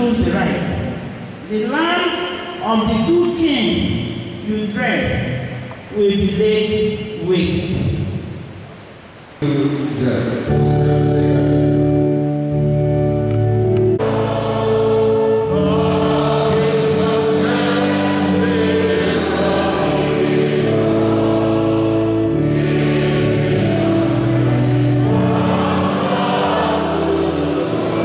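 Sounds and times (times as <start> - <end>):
church choir singing a hymn: 10.4 - 28.0.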